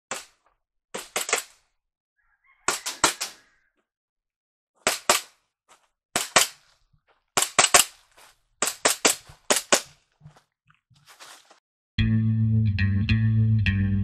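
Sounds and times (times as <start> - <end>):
airsoft pistol popping shots: 4.8 - 5.4, 6.2 - 6.6, 7.4 - 7.9, 8.6 - 9.9.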